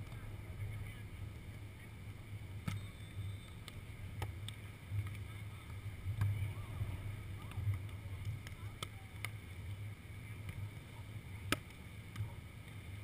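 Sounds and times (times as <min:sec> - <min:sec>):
faint sharp clicks: 0:07.4 - 0:09.8.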